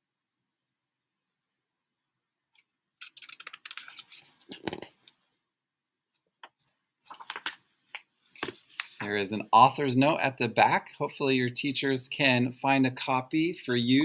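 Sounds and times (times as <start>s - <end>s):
book pages rustling and flapping: 3.0s - 5.2s, 6.6s - 9.1s.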